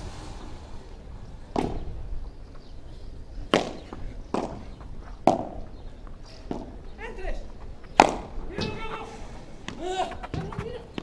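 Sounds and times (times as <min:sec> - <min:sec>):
paddle striking ball: 0:03.5 - 0:04.6, 0:05.2 - 0:05.6, 0:08.0 - 0:08.9.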